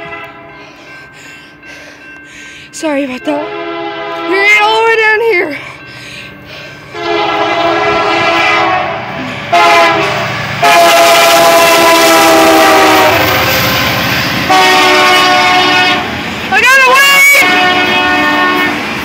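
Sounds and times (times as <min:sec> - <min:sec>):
locomotive air horn blasts: 0:00.0 - 0:00.5, 0:03.4 - 0:04.7, 0:06.9 - 0:13.4, 0:14.5 - 0:16.2, 0:16.9 - 0:18.9.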